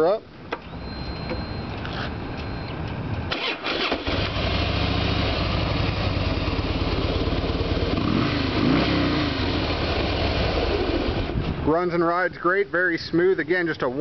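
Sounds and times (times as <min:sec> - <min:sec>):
electric starter cranking: 0:03.3 - 0:04.5
motorcycle engine idling: 0:04.4 - 0:08.6.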